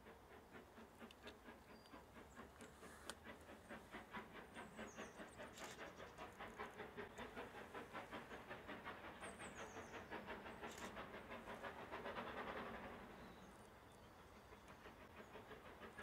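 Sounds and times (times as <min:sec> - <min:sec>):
steam hiss: 0:00.0 - 0:16.0
steam train rapid beat: 0:00.0 - 0:16.0.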